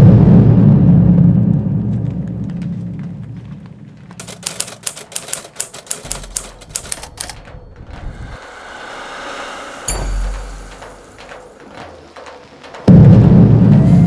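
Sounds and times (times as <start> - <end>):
low rumble: 0.0 - 4.2, 6.1 - 14.0
typewriter key clacks: 4.2 - 7.6.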